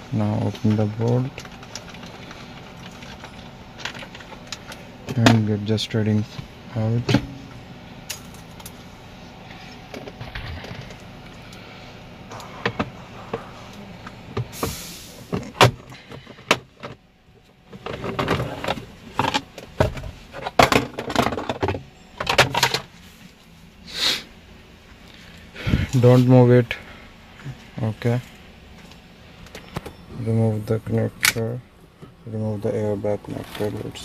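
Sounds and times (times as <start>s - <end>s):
short hiss: 14.5s - 15.3s, 23.9s - 24.3s
clicks knocks and plastic rattles: 15.4s - 17.0s, 17.7s - 22.9s.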